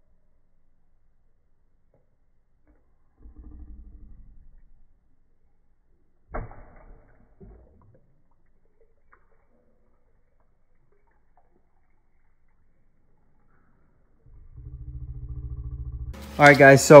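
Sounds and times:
water dripping: 0:04.5 - 0:14.2
fish splashing water: 0:06.3 - 0:13.6.

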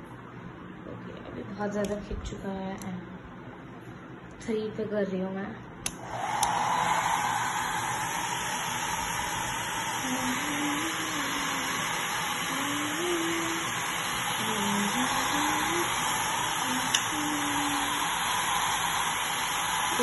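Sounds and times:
hair dryer blowing: 0:05.9 - 0:20.0.

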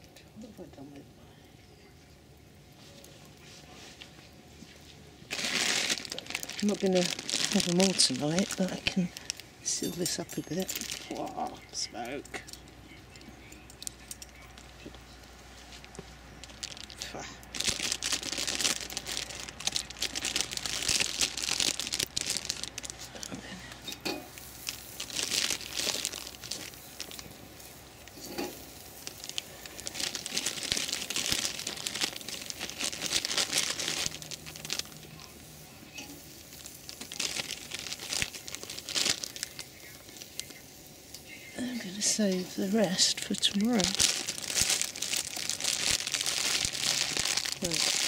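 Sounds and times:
food sizzling on grill: 0:05.3 - 0:12.6, 0:18.8 - 0:32.8, 0:33.5 - 0:47.8
plastic bag crinkling: 0:05.3 - 0:48.0.

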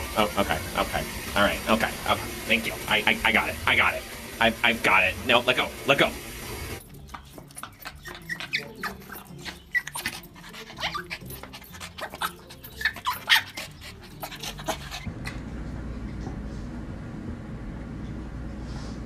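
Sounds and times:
dog panting: 0:07.1 - 0:15.4
dog whimpering: 0:07.5 - 0:15.4.

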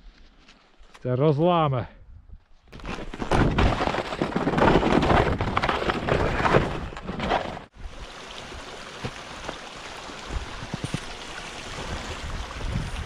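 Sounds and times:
wind on microphone: 0:10.2 - 0:13.0.

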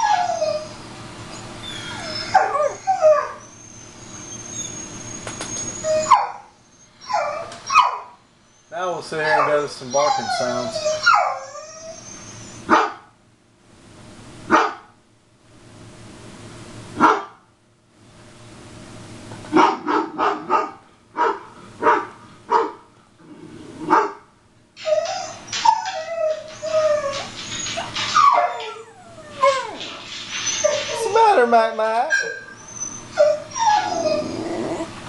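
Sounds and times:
dog whining and yelping: 0:00.0 - 0:12.7, 0:24.8 - 0:31.4, 0:32.1 - 0:35.0
recorded dog barking: 0:12.7 - 0:13.1, 0:14.5 - 0:14.9, 0:17.0 - 0:17.4, 0:19.5 - 0:22.9, 0:23.9 - 0:24.3.

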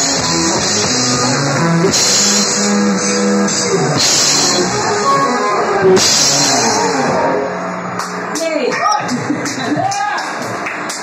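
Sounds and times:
rock band playing live: 0:00.0 - 0:08.3.

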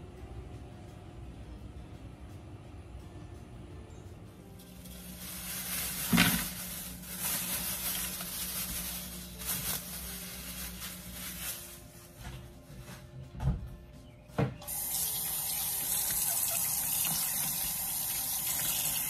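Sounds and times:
shrimp rustling from plastic bag: 0:04.8 - 0:12.2.

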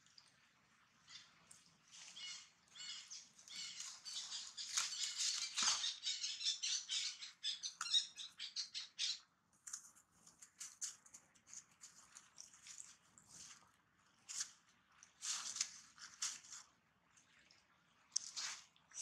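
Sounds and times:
dry leaves rustling and crunching: 0:03.6 - 0:05.9.

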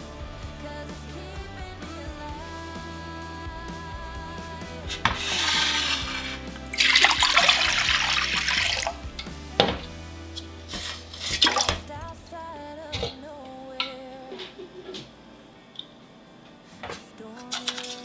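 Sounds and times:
background music: 0:00.0 - 0:18.0
water pouring into saucepan: 0:06.7 - 0:09.0.

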